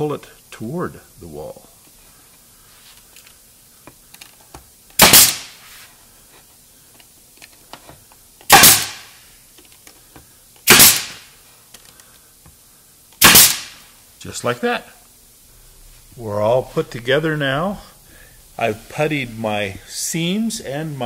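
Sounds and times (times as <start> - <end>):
nail gun firing with hiss: 4.9 - 5.6, 8.4 - 9.2, 10.6 - 11.4, 13.2 - 14.0.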